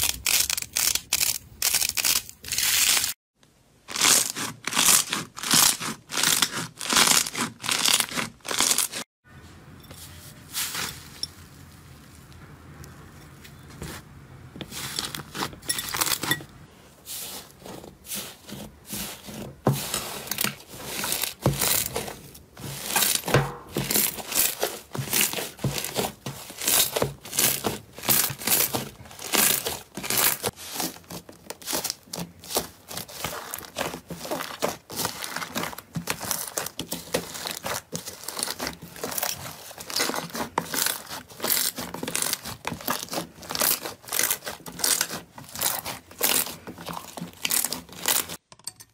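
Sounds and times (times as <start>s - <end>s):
slime crackling and popping: 31.5s - 48.4s.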